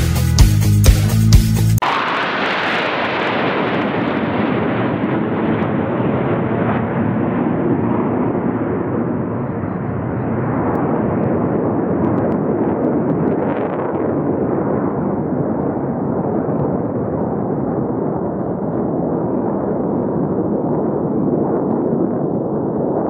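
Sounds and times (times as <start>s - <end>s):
music: 0.0s - 1.8s
jet aircraft engine rushing: 1.8s - 23.0s.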